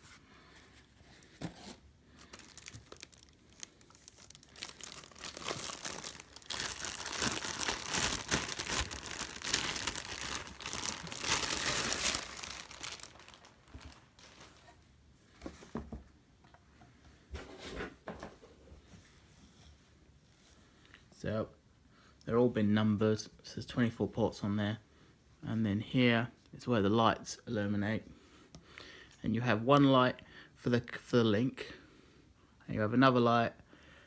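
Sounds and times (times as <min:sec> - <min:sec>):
plastic wrapping crinkling: 0:01.1 - 0:14.8.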